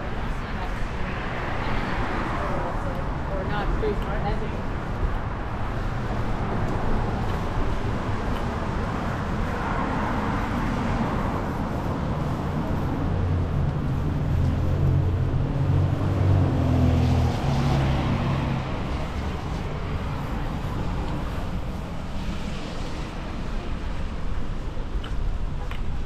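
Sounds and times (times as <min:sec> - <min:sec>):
cars passing on wet road: 0:00.1 - 0:24.7
vehicle engine hum: 0:04.4 - 0:26.0.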